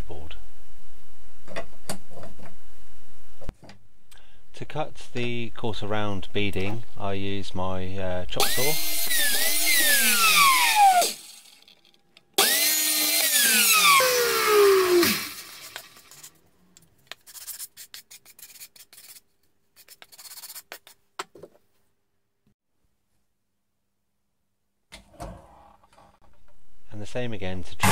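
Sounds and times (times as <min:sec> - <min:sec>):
mitre saw motor whine: 0:08.4 - 0:11.2, 0:12.4 - 0:15.6.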